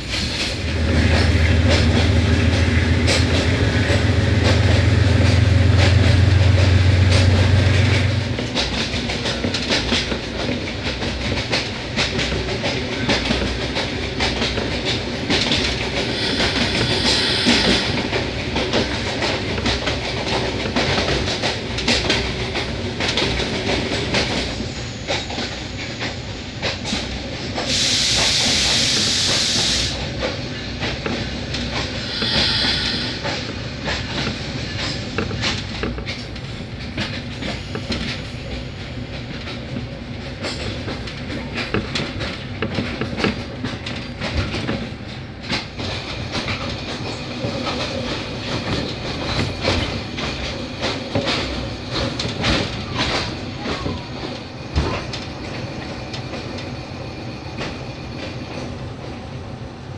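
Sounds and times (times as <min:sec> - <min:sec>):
train wheels clattering over rails: 0:00.0 - 0:59.9
loud hiss: 0:16.0 - 0:18.1, 0:27.7 - 0:30.0, 0:32.0 - 0:33.3.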